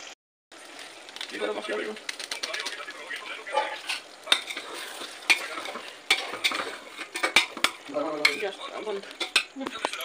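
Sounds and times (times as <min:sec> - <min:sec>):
masala sizzling: 0:00.0 - 0:10.0
metal spoon knocking and scraping pot: 0:03.6 - 0:08.6, 0:09.2 - 0:10.0.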